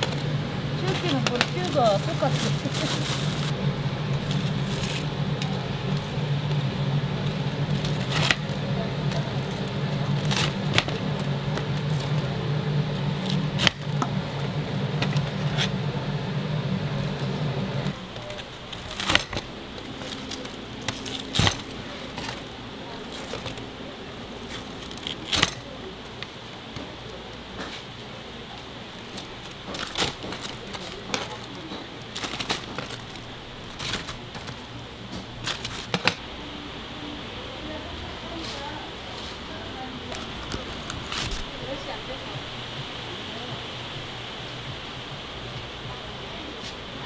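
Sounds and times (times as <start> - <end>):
low hum: 0.0 - 30.7
cutter chopping fried chicken: 4.1 - 15.9, 18.1 - 23.6, 29.1 - 34.6.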